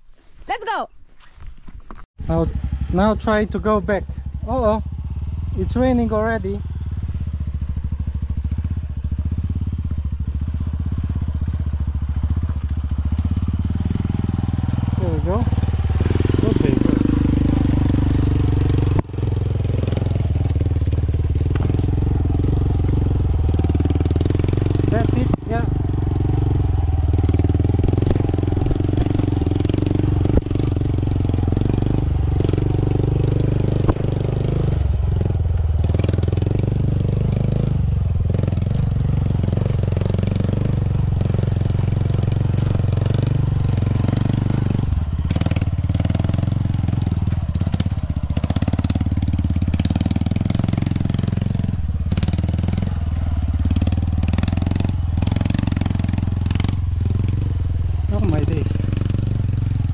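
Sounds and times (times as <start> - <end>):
dirt bike engines running: 0.5 - 0.9, 1.7 - 59.9
sharp knocks: 33.8 - 34.3.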